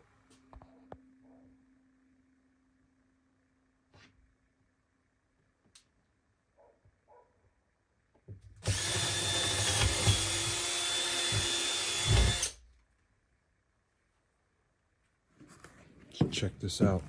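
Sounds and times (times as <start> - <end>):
cordless drill boring wood: 8.6 - 12.6.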